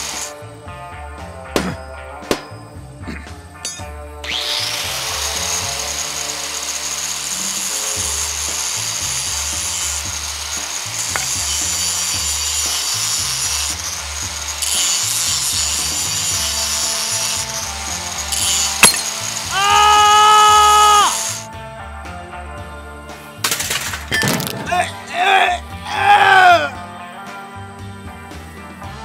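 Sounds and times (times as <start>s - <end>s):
angle grinder cutting metal: 0.0s - 0.4s, 3.7s - 21.5s
low background music: 0.0s - 29.0s
sharp crack: 1.5s - 3.9s, 23.4s - 25.1s.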